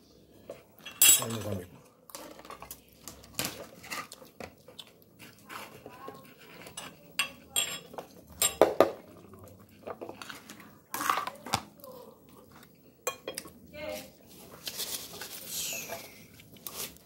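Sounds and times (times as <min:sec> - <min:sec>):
metal spoon clinking on a plate: 0:00.8 - 0:01.6, 0:06.6 - 0:08.7.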